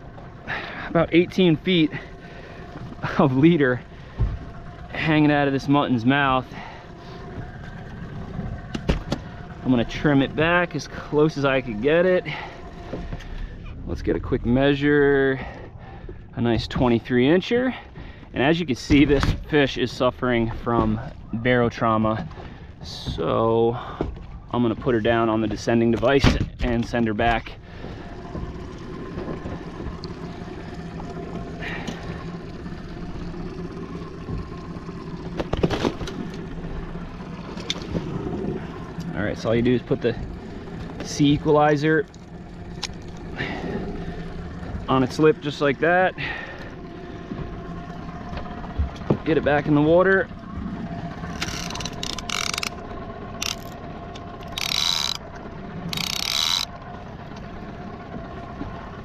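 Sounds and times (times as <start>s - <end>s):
outboard engine idling: 0.0s - 59.0s
fishing reel clicker ratcheting: 51.3s - 52.8s, 53.4s - 55.3s, 55.9s - 56.8s.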